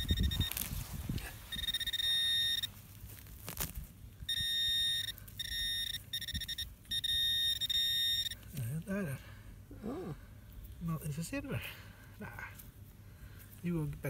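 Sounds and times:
high electronic beep: 0:00.0 - 0:00.6, 0:01.5 - 0:02.7, 0:04.3 - 0:08.4
soil and grass rustling: 0:00.0 - 0:14.0.

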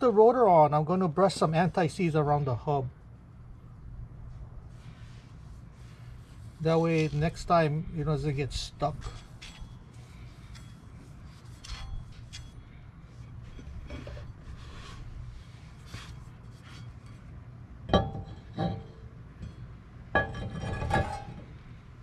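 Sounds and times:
steady low hum: 0:00.0 - 0:22.0
light ticks and scraping: 0:08.2 - 0:15.0
metallic clinks of brake rotor: 0:08.9 - 0:12.8.

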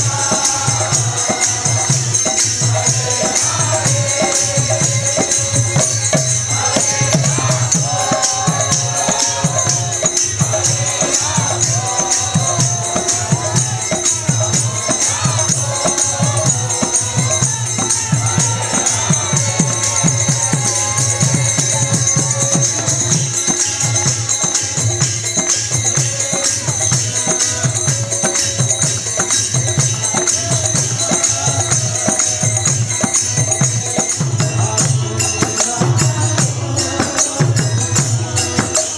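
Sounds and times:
hand cymbals jingling: 0:00.0 - 0:38.9
harmonium: 0:00.0 - 0:38.9
voices chanting together: 0:00.0 - 0:38.9.

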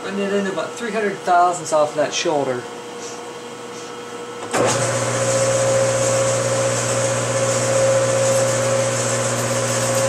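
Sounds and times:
lathe motor humming with whine: 0:02.7 - 0:10.0.

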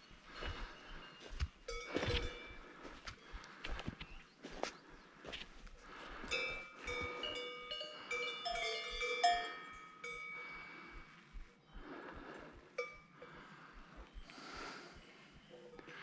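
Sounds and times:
footsteps on dirt path: 0:00.0 - 0:07.5
cowbells clanking: 0:01.6 - 0:02.7, 0:06.2 - 0:11.1, 0:12.8 - 0:13.6.

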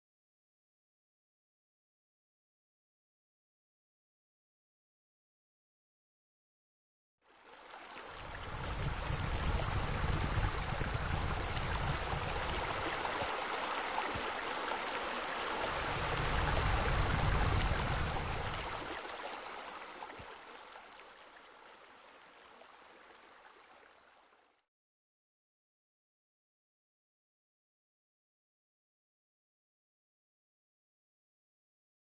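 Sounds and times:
water rushing and splashing: 0:07.3 - 0:24.4.

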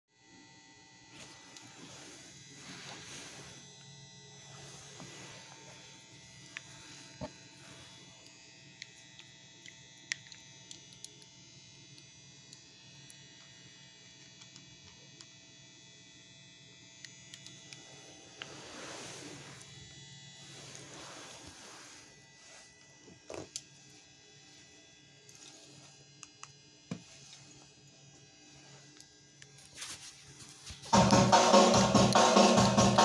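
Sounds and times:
electrical hum and buzz: 0:00.2 - 0:33.0.

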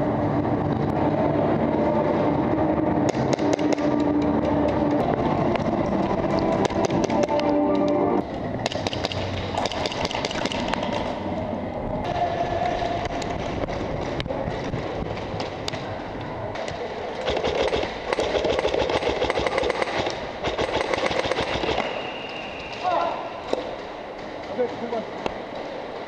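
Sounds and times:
airsoft rifle rapid shots: 0:08.6 - 0:11.0, 0:17.2 - 0:22.0
general clatter of play: 0:12.6 - 0:22.0.

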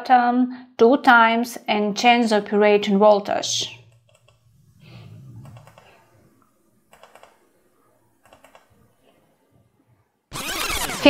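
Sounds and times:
faint low hum: 0:02.4 - 0:11.0.

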